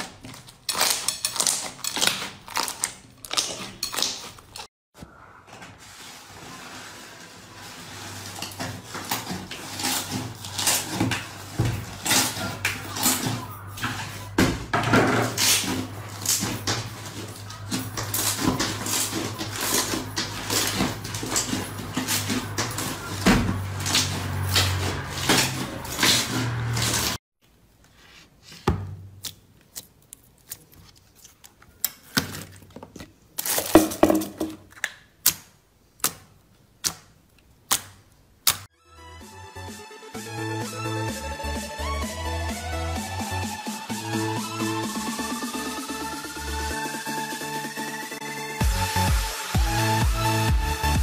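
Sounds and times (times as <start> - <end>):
slime squelching: 28.1 - 33.8.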